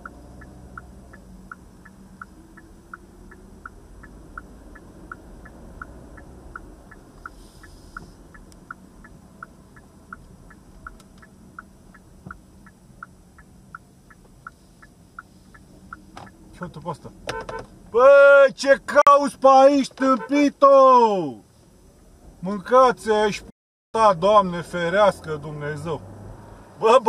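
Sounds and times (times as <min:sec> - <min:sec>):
turn signal ticking: 0:00.0 - 0:18.0
engine and tyre hum: 0:00.0 - 0:27.0.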